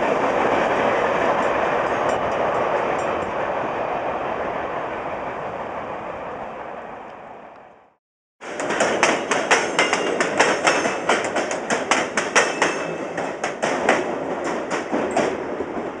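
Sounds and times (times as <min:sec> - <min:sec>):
railway wheels clacking over joints: 0:00.0 - 0:03.5, 0:08.4 - 0:16.0
steady train rumble: 0:00.0 - 0:16.0.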